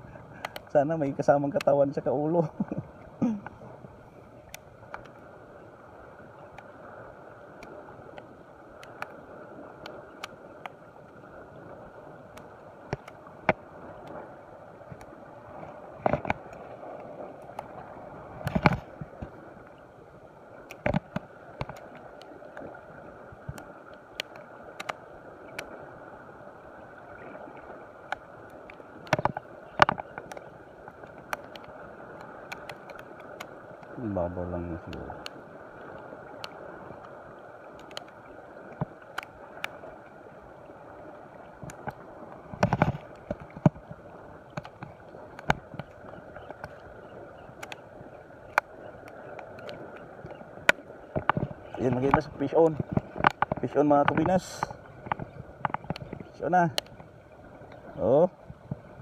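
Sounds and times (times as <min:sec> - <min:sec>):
sea noise: 0:00.0 - 0:59.0
fishing rod and reel clicks: 0:00.3 - 0:02.4, 0:04.4 - 0:05.3, 0:07.5 - 0:11.3, 0:12.2 - 0:14.3, 0:14.9 - 0:19.8, 0:20.6 - 0:22.8, 0:23.4 - 0:25.9, 0:28.0 - 0:34.0, 0:34.8 - 0:40.1, 0:41.6 - 0:57.1
wind noise: 0:41.5 - 0:59.0.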